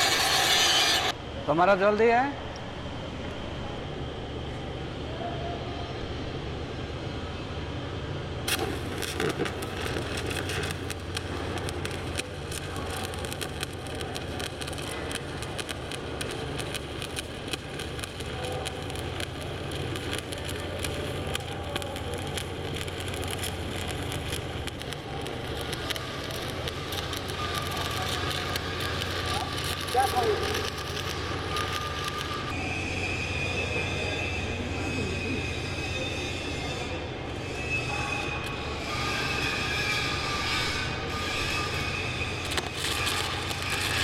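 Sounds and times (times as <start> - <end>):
welding arc crackling: 0.0 - 1.2, 8.5 - 32.6, 40.0 - 44.0.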